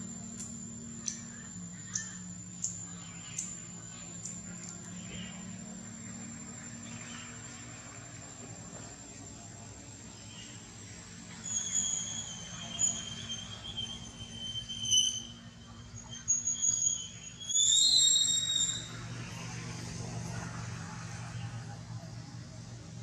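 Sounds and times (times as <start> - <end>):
high thin whistling squeals: 0.0 - 5.7, 10.2 - 19.5
low steady hum: 0.0 - 17.6.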